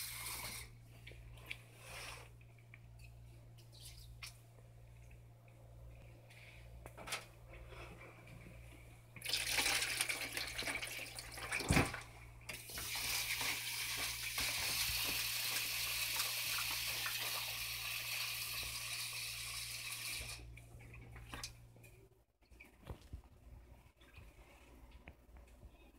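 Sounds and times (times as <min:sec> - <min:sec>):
tap water running into sink: 0:09.2 - 0:20.4.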